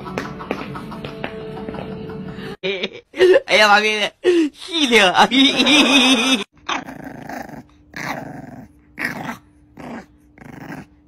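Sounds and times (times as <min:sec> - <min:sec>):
puppy growling: 0:06.6 - 0:11.0.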